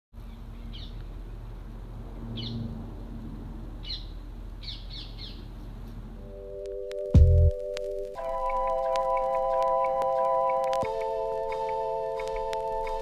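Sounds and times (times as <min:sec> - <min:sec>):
small bird chirping: 0:00.2 - 0:01.1, 0:03.8 - 0:05.5, 0:08.2 - 0:13.0
held musical tones: 0:06.2 - 0:13.0.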